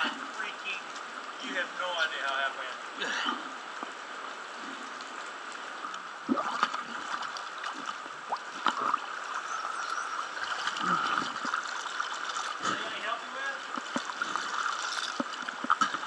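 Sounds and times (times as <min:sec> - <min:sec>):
water sloshing and splashing: 0:03.8 - 0:16.0.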